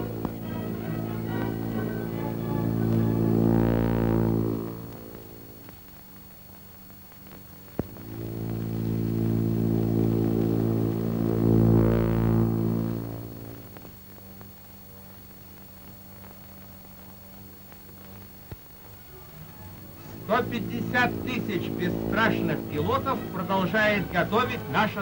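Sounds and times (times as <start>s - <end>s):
propeller plane engine droning: 0.0s - 6.2s, 7.8s - 14.0s, 18.0s - 25.0s.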